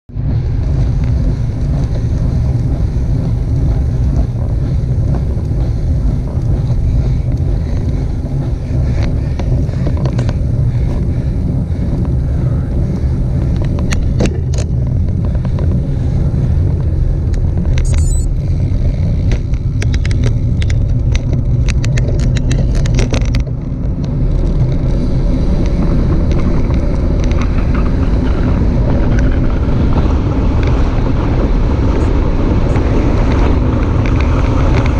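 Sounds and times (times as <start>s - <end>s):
tyres rumbling on asphalt: 0.1s - 34.9s
wind buffeting microphone: 0.1s - 34.9s
bike clicks and rattles: 0.2s - 34.9s.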